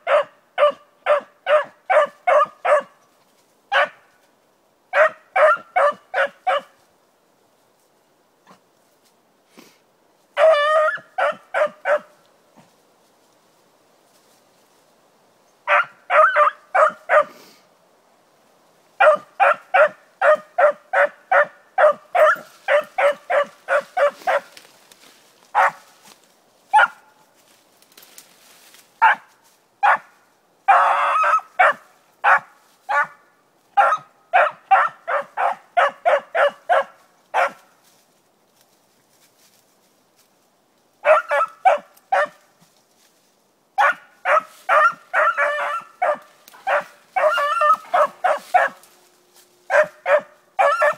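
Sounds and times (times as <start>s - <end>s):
dog barking: 0.0s - 3.0s, 3.7s - 4.0s, 5.0s - 6.8s, 10.4s - 12.2s, 15.7s - 17.4s, 19.0s - 24.5s, 25.6s - 25.9s, 26.7s - 27.1s, 29.0s - 30.1s, 30.7s - 33.2s, 33.8s - 37.7s, 41.0s - 42.4s, 43.8s - 48.8s, 49.7s - 50.9s.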